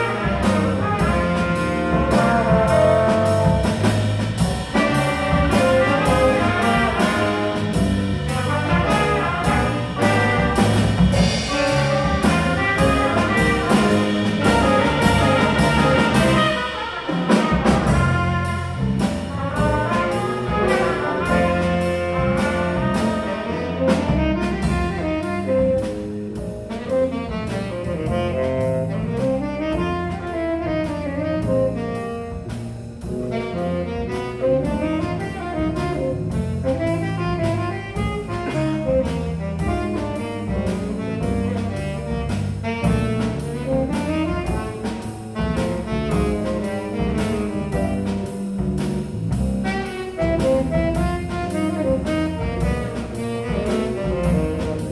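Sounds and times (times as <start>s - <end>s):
saxophone melody: 0.0s - 25.9s, 26.5s - 48.4s, 49.2s - 54.9s
drums: 0.0s - 54.9s
piano: 0.0s - 54.9s
trumpets: 0.0s - 54.9s.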